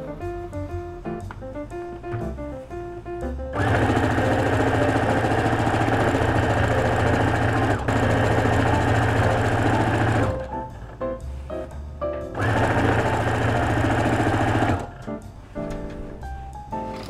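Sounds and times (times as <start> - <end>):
sewing machine stitching: 3.5 - 10.5, 12.3 - 15.0.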